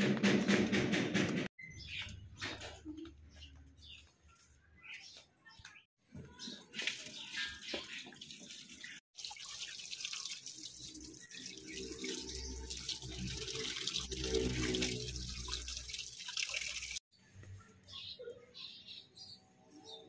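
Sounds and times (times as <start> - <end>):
water running and splashing: 6.5 - 17.1.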